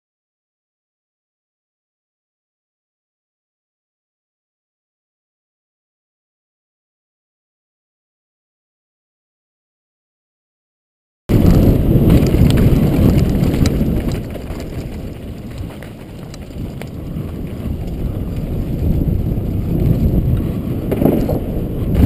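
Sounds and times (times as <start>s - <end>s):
bike tyres rumbling on gravel: 11.3s - 22.0s
wind buffeting microphone: 11.3s - 22.0s.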